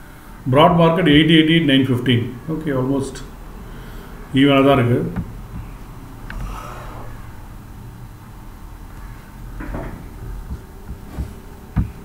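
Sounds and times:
low steady hum: 0:00.0 - 0:12.0
soft knocks: 0:05.1 - 0:05.8, 0:09.6 - 0:12.0.

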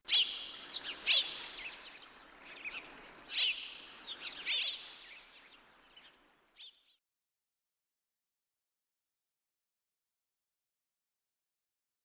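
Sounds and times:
birds chirping: 0:00.0 - 0:07.0
soft steady hiss: 0:00.0 - 0:07.0.

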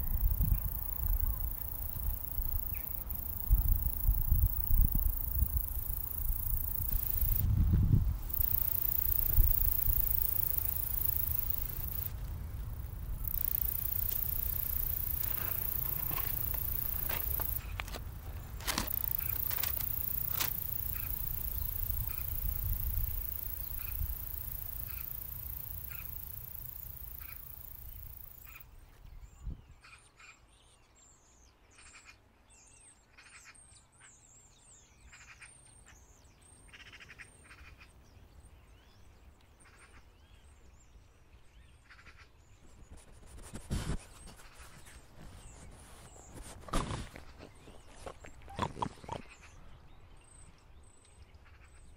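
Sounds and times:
small birds chirping: 0:00.0 - 0:29.6, 0:34.8 - 0:51.9
rustling and handling noise: 0:13.4 - 0:22.0, 0:42.7 - 0:49.2.

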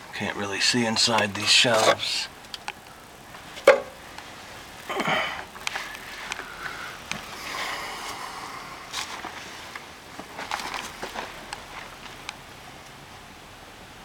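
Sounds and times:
short breathy rush: 0:05.0 - 0:09.7.

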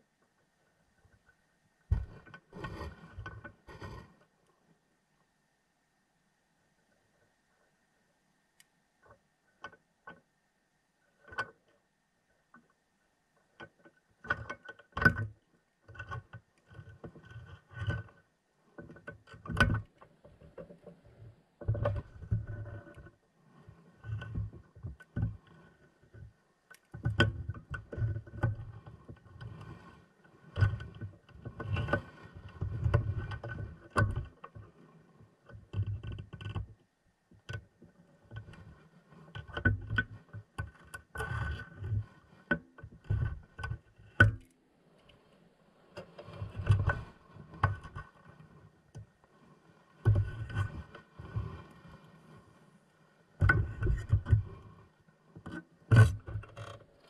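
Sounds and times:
underwater thuds and knocks: 0:01.9 - 0:02.3.

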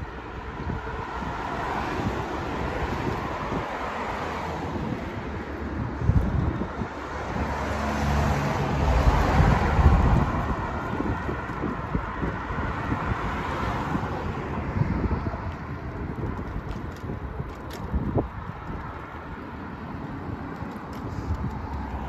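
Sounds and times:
car traffic on road: 0:00.0 - 0:22.0
wind buffeting microphone: 0:00.0 - 0:22.0.

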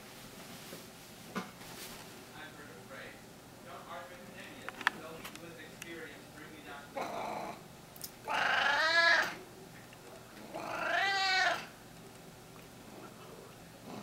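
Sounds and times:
cat meowing: 0:08.3 - 0:09.4, 0:10.5 - 0:11.7.

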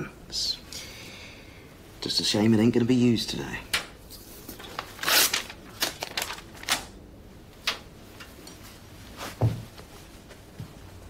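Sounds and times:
paper tearing: 0:04.8 - 0:06.9
body thudding on floor: 0:09.3 - 0:09.9.

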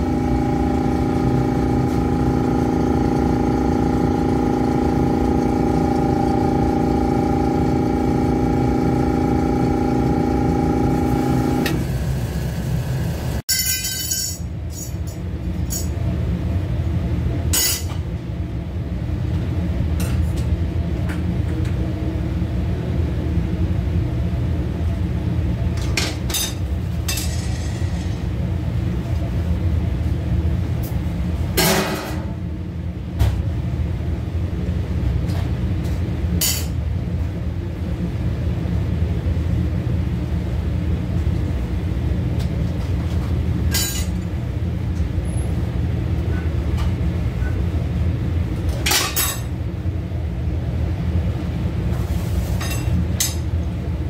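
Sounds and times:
low machine hum: 0:00.0 - 0:54.0
clinks of metal or dishes: 0:13.5 - 0:15.0.

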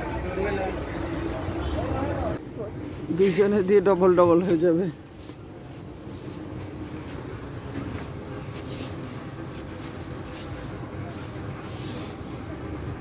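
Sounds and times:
crowded indoor market rumble: 0:00.0 - 0:13.0.

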